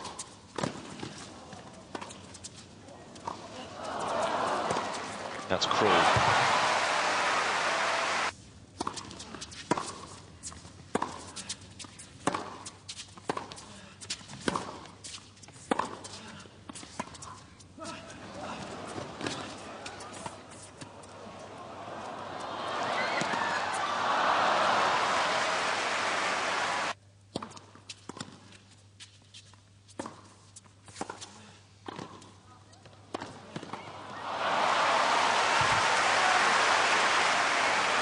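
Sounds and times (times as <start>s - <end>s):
tennis ball bouncing on hard court: 0.0s - 1.2s, 10.9s - 11.2s, 12.2s - 13.6s
crowd applauding and cheering: 3.8s - 8.3s, 21.1s - 27.0s, 33.9s - 38.0s.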